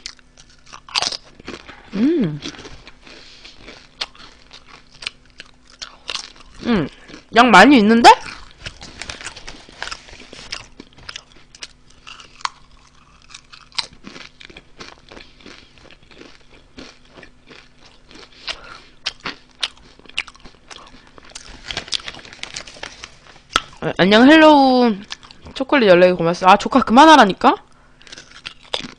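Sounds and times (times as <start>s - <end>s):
chips crunching: 0.0s - 7.3s, 8.2s - 23.8s, 28.0s - 28.9s
foil snack bag crinkling: 8.2s - 17.1s, 17.7s - 23.6s.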